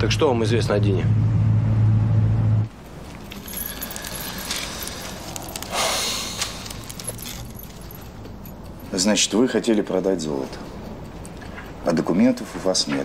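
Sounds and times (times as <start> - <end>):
neck chain jingling: 2.7 - 12.3.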